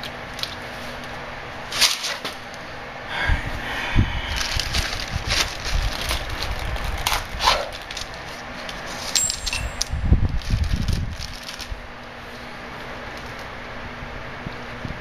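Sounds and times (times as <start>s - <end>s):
tools clicking and clinking: 8.6s - 10.0s.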